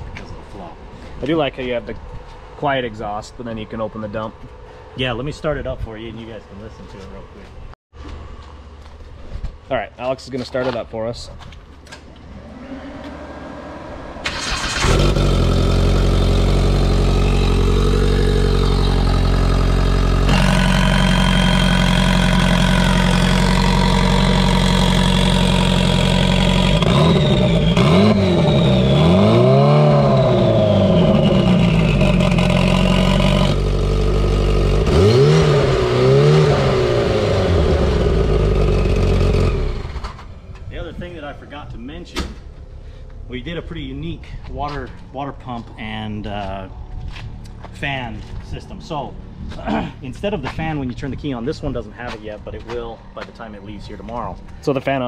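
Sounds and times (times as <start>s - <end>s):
engine revving: 12.2s - 40.3s
engine starting and idling: 14.2s - 27.8s, 37.6s - 40.3s.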